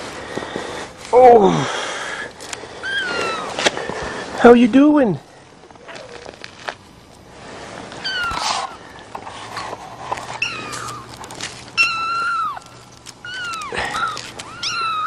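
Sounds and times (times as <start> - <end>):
kittens mewing: 2.7 - 3.7, 5.8 - 6.4, 7.9 - 9.0, 10.3 - 15.0.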